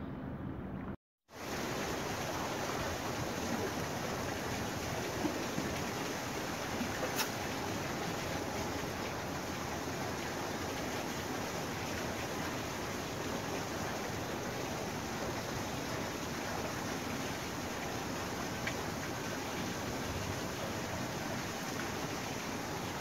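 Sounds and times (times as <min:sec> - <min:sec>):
seawater washing against rocks: 0:04.8 - 0:08.7.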